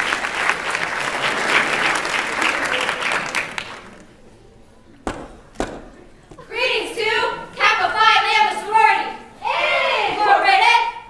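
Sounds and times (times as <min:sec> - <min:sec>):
audience applauding and cheering: 0:00.0 - 0:04.1.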